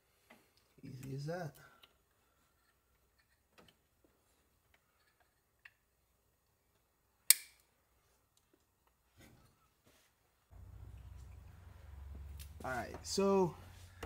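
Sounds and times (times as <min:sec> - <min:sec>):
sharp loud click: 0:07.3 - 0:07.6.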